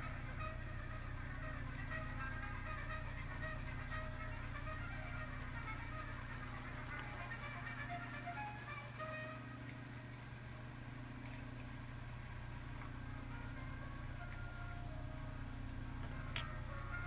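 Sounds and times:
faint musical tones: 0.0s - 10.7s, 12.6s - 17.0s
steady low hum: 0.0s - 17.0s
pencil scratching on paper: 1.6s - 9.3s, 10.1s - 15.0s.

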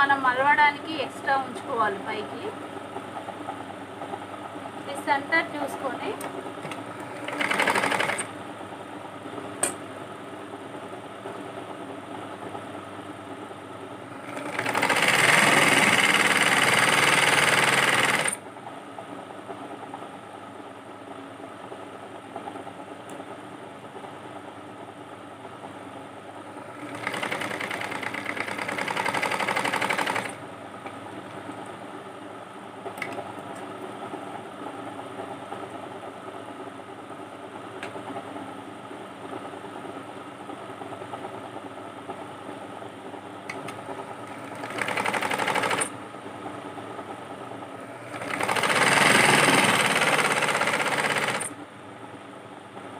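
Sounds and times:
sewing machine stitching: 6.2s - 8.3s, 14.2s - 18.4s, 26.7s - 30.4s, 44.2s - 45.9s, 48.0s - 51.6s.

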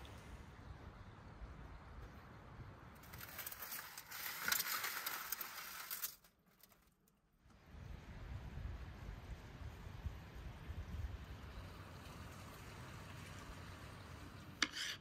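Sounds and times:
faint outdoor background: 0.0s - 15.0s
roast crackling and sizzling: 3.0s - 7.1s.

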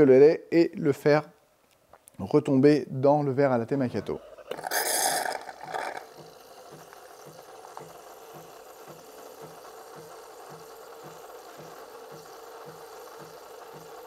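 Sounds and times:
espresso machine humming and hissing: 4.1s - 14.0s.

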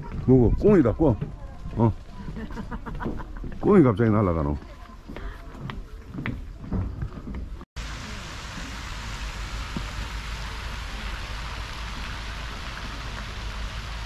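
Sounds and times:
outdoor noise hiss: 6.7s - 14.0s.

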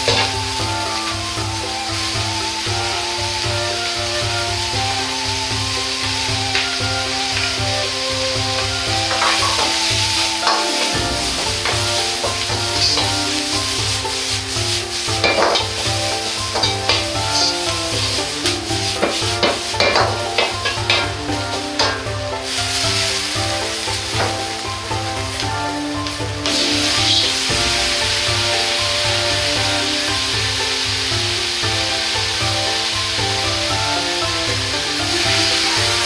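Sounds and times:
metal ladle scraping a wok: 0.0s - 3.0s, 5.8s - 36.0s
food sizzling in a wok: 0.0s - 36.0s.

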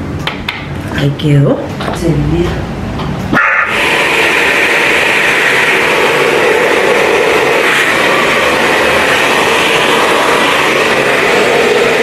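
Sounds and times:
hair dryer running: 3.4s - 12.0s.

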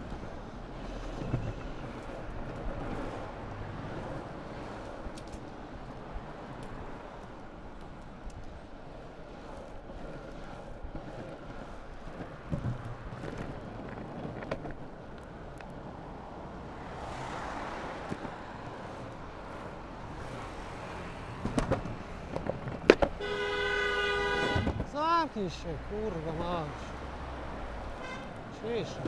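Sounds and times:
vehicle passing: 0.0s - 7.7s, 10.3s - 29.0s
road traffic: 0.0s - 29.0s
skateboard wheels rolling on asphalt: 0.0s - 29.0s
steady horn-like tone: 23.2s - 24.8s, 28.0s - 28.4s.

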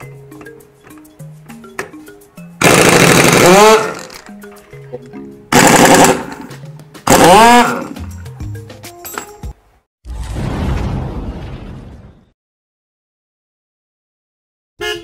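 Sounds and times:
electric impact wrench hammering: 2.6s - 4.2s, 5.5s - 8.0s.

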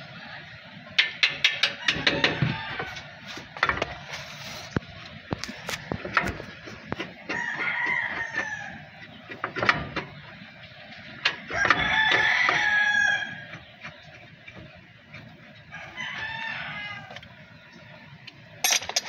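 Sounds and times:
hand tools clicking and knocking: 1.0s - 4.0s, 18.6s - 19.0s
rooster crowing: 1.7s - 3.3s, 7.3s - 8.9s, 11.5s - 13.5s, 15.7s - 17.3s.

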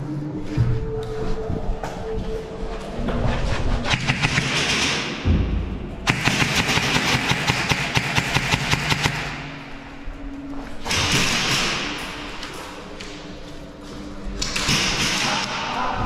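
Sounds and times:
airsoft rifle firing: 6.1s - 9.6s, 14.4s - 15.8s.

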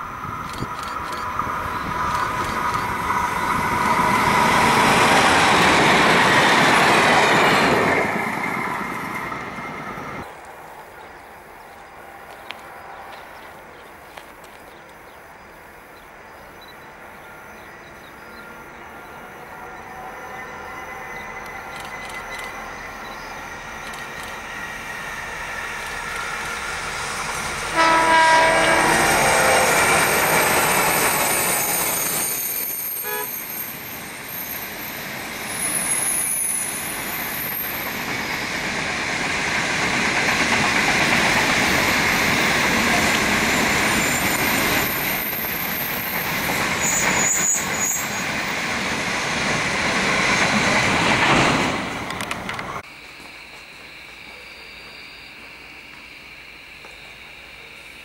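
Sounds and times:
train wagons rolling: 0.0s - 15.2s, 16.9s - 56.1s
train horn blast: 27.7s - 30.3s, 33.0s - 33.5s
high wheel squeals: 27.8s - 38.7s, 41.7s - 48.9s.

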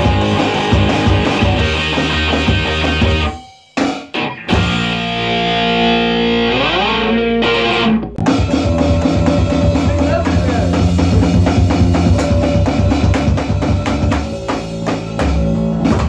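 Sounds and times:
electric guitar chord ringing: 0.0s - 8.4s
rock band playing: 0.0s - 16.0s.

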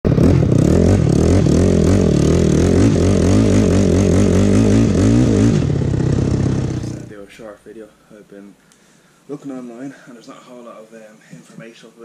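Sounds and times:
quad engine revving: 0.1s - 7.1s.

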